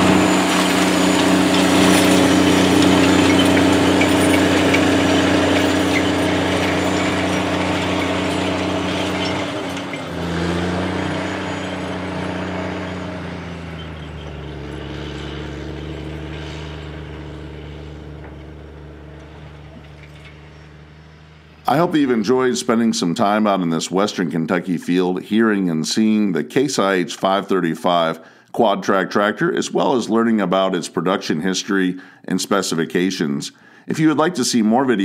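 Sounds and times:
tractor engine under load: 0.0 - 24.1.

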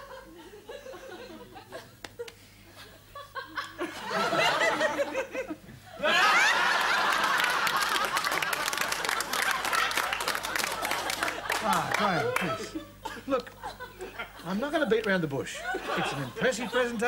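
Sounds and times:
audience laughter: 2.8 - 13.0, 13.6 - 17.0.

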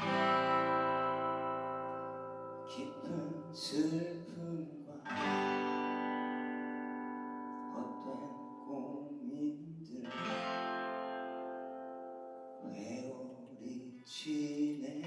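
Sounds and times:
acoustic guitar chords strummed: 0.0 - 13.8
man singing: 2.7 - 5.6, 7.7 - 10.4, 12.6 - 15.0.

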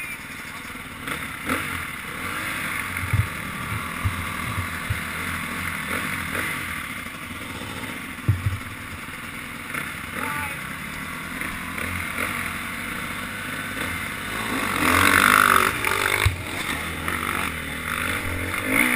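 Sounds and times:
dirt bike engines idling: 0.0 - 18.9
low thumps: 2.9 - 5.6, 8.2 - 8.8.

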